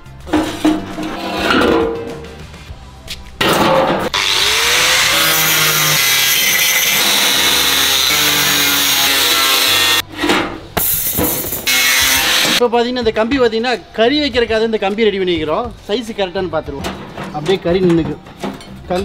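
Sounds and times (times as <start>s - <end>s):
angle grinder cutting steel mesh: 4.1s - 10.0s, 11.0s - 12.6s.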